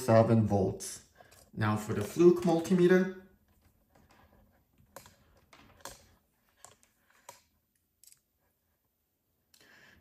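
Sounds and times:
faint sharp plastic clicks: 0:04.9 - 0:08.3.

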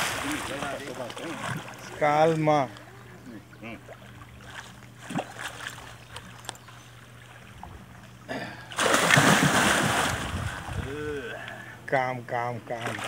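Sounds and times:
churning water: 0:00.0 - 0:13.0
heavy fish splash: 0:08.7 - 0:11.0.

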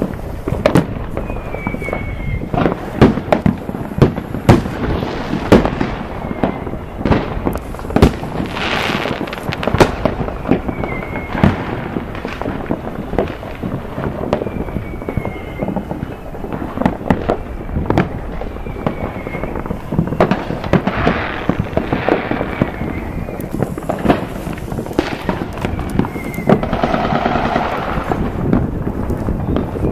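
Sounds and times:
fireworks bangs and pops: 0:00.0 - 0:29.9
fireworks crackling: 0:00.0 - 0:29.9.

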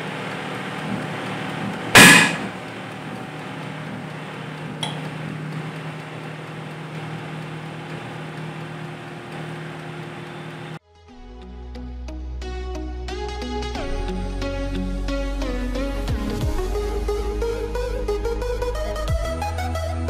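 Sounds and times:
electric oven humming: 0:00.0 - 0:10.8
loud sharp crack: 0:02.0 - 0:02.7.

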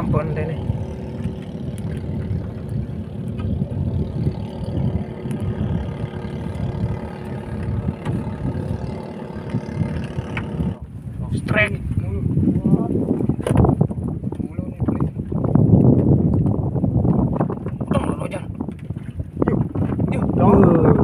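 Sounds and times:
motor rumbling: 0:00.0 - 0:11.0.

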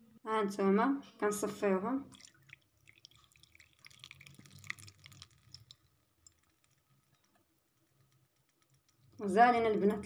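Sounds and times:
liquid trickling through a sieve: 0:02.1 - 0:09.3
small clicks: 0:05.2 - 0:09.2.

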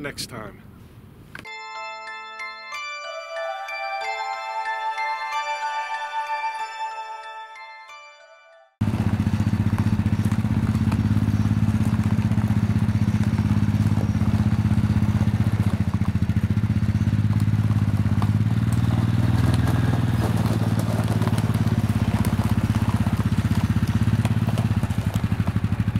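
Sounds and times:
quad bike engine running: 0:08.8 - 0:25.9.

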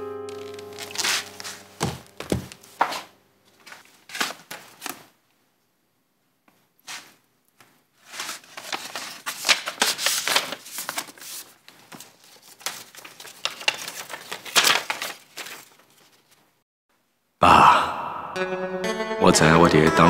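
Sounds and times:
paper rustling and crinkling: 0:00.4 - 0:05.2, 0:08.0 - 0:16.5.

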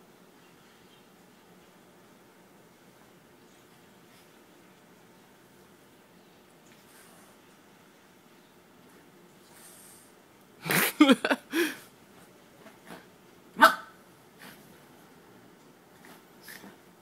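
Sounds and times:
small dog barking: 0:13.6 - 0:14.0.

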